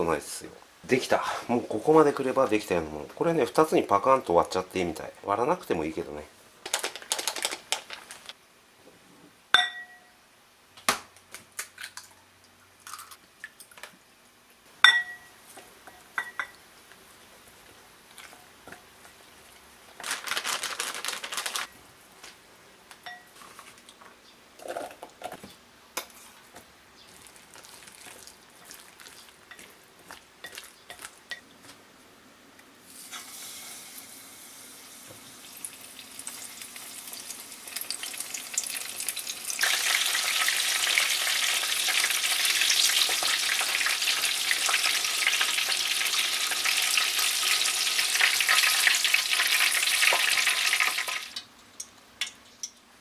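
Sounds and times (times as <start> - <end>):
measuring cup clinking on bowl: 9.6 - 10.2, 14.8 - 15.3, 15.9 - 16.6, 23.0 - 23.4
batter being stirred: 24.6 - 31.4
hot oil sizzling: 32.8 - 52.8.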